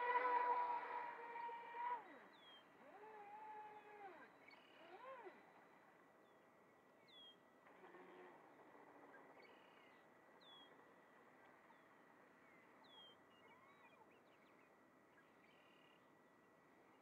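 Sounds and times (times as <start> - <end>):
distant bird calls: 0.0 - 5.3.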